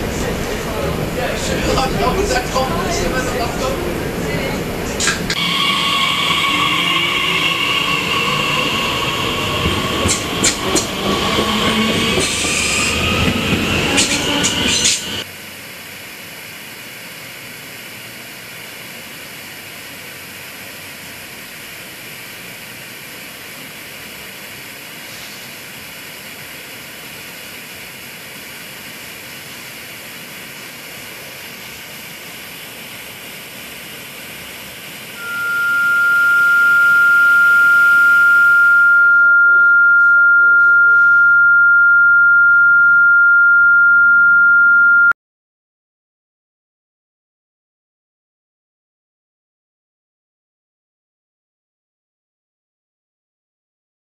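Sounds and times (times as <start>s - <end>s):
train passing close by: 0.0s - 37.2s
steady high pure tone: 1.6s - 15.2s, 35.2s - 45.2s
high whining tones: 5.3s - 15.2s, 35.2s - 45.1s.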